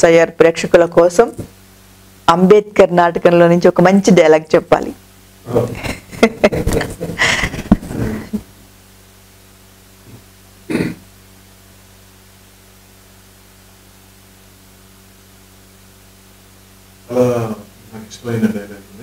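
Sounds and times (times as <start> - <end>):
low electrical hum: 0.0 - 19.0
people laughing: 5.6 - 8.4
person clearing throat: 10.1 - 11.1.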